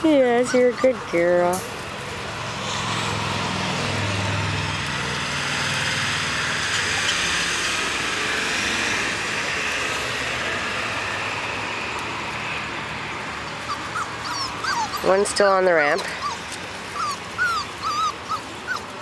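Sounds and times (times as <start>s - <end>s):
vehicle engine hum: 0.0s - 19.0s
road hiss: 1.6s - 15.5s.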